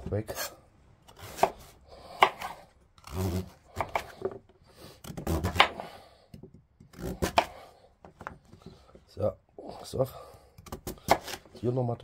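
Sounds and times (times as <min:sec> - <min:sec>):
blade pushing through root: 0:00.3 - 0:04.2, 0:04.9 - 0:06.0, 0:06.8 - 0:07.7
knife chopping: 0:01.1 - 0:04.4, 0:05.0 - 0:07.6, 0:10.6 - 0:11.6.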